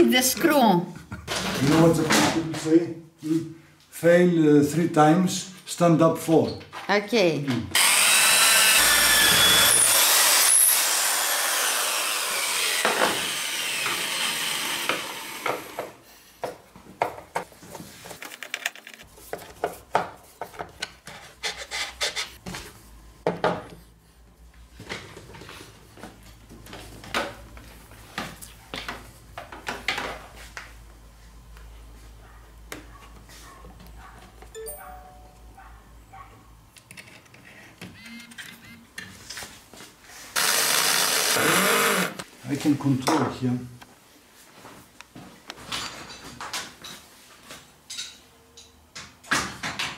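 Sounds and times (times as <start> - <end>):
electric drill boring into wood: 7.8 - 16.0, 40.4 - 42.2.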